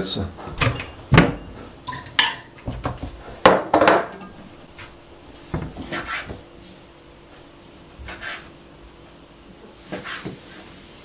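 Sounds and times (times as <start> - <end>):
cookware rattling: 1.8 - 2.6.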